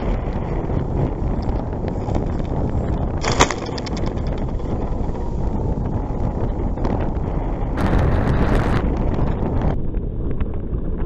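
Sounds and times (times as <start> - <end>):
model plane motor and propeller: 0.0 - 7.8
wind rushing over microphone: 0.0 - 11.0.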